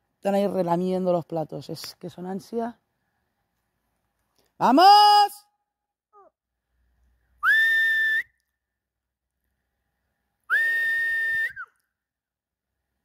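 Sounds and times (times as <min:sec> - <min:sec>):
shepherd whistling: 0:07.4 - 0:08.4, 0:10.5 - 0:11.8.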